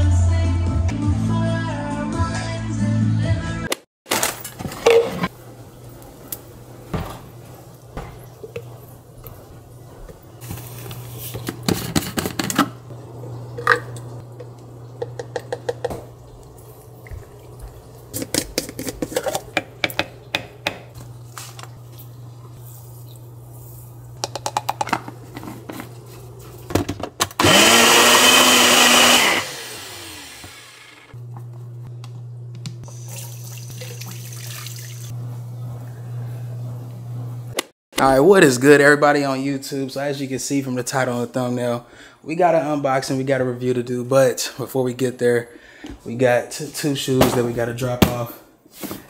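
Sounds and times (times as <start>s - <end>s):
kitchen containers clattering: 4.1s - 5.4s, 10.4s - 14.1s, 18.1s - 21.7s
blender running: 27.4s - 31.2s.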